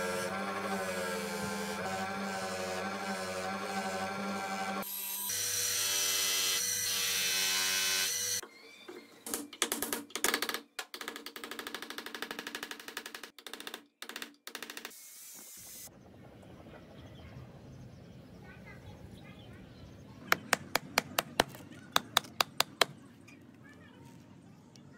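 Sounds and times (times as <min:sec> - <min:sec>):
buffing wheel whirring: 0:00.0 - 0:05.4
angle grinder cutting: 0:00.0 - 0:08.4
fast even knocks: 0:20.3 - 0:22.9.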